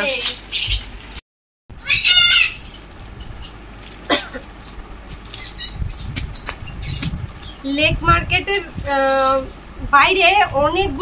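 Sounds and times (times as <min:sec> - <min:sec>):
bird squawking: 0:01.8 - 0:03.6.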